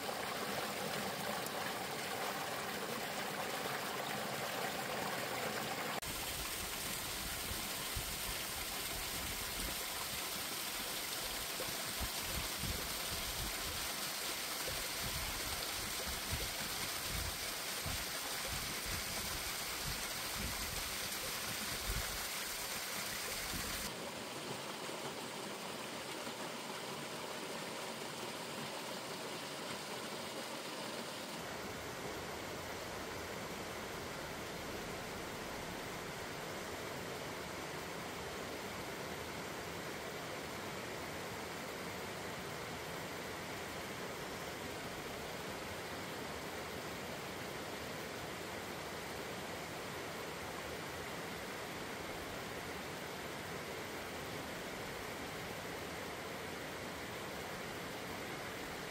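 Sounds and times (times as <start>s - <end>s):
mountain stream splashing over rocks: 0.0s - 58.9s.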